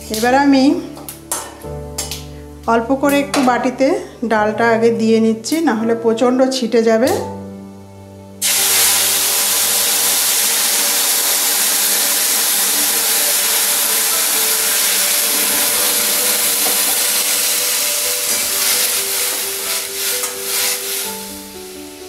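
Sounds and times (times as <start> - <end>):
food sizzling in hot oil: 8.4 - 22.0.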